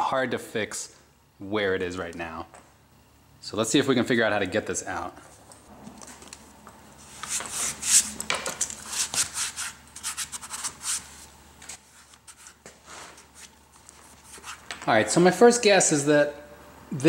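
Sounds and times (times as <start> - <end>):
hands scratching fabric and plastic: 7.2 - 11.1, 13.2 - 14.8.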